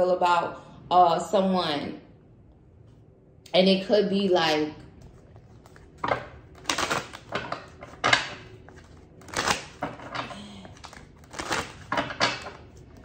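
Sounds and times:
cards shuffling and slapping: 5.0 - 13.0.

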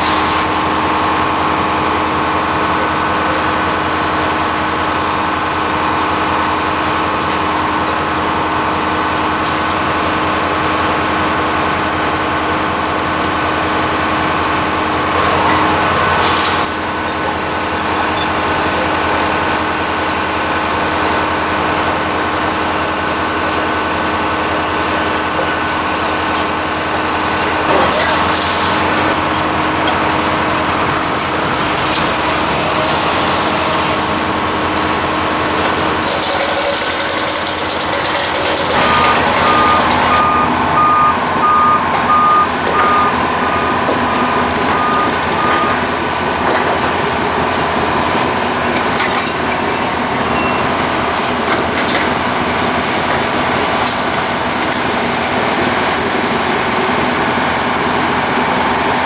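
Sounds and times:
air hissing bursts: 0.0 - 0.5
diesel machinery running: 0.0 - 59.0.

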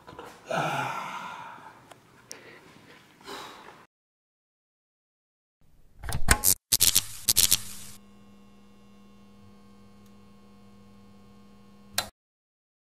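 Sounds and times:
electrical hum: 6.7 - 12.1.

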